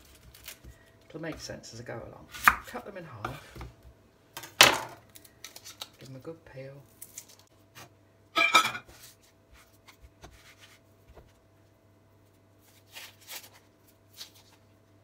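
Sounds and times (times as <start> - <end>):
onion skin crackling and tearing: 0.0 - 1.0, 5.0 - 6.2, 6.8 - 7.5, 12.3 - 14.7.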